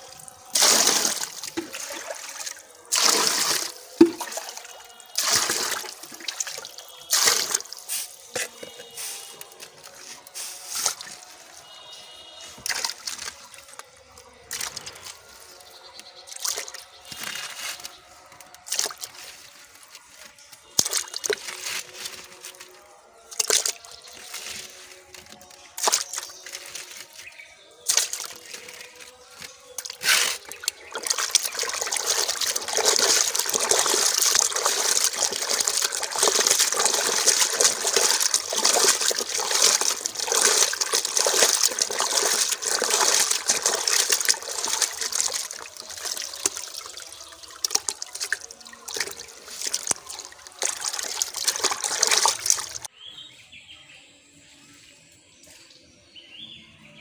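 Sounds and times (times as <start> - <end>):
hands rinsing fish pieces: 0.0 - 11.4, 12.5 - 13.9, 16.3 - 27.2, 27.8 - 52.9
water sloshing in a plastic bucket: 0.0 - 52.9.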